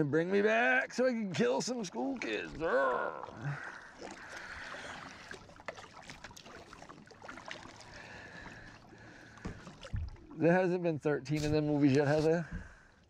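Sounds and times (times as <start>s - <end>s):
water drips and splashes: 0.0s - 13.0s
kayak paddle strokes in water: 3.2s - 10.4s.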